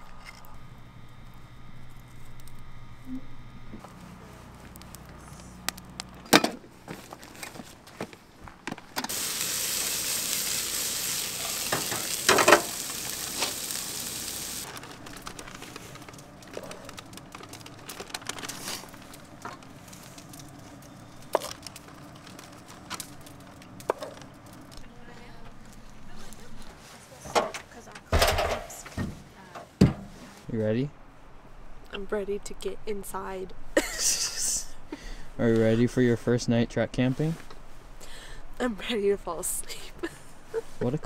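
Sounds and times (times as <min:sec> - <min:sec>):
food sizzling in hot pan: 0:09.1 - 0:14.7.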